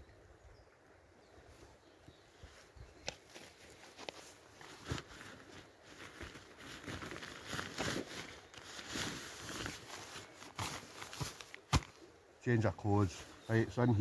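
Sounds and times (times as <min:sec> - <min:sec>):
nylon fabric rustling: 0:03.3 - 0:11.9.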